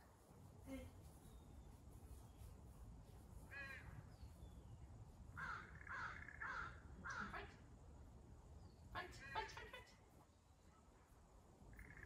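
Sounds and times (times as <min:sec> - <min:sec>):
crow cawing: 0:05.4 - 0:07.3.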